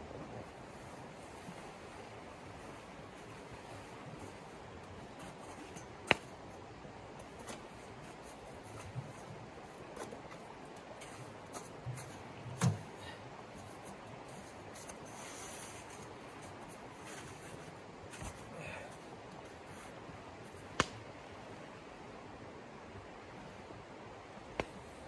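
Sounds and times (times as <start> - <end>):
camp gear knocks and clicks: 9.9 - 13.0.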